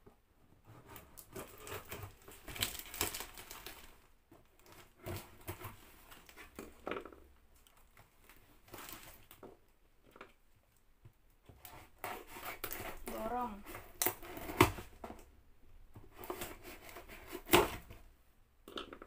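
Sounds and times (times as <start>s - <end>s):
packaging crinkling: 1.5s - 4.8s
scissors cutting cardboard: 11.6s - 14.9s, 16.1s - 18.0s.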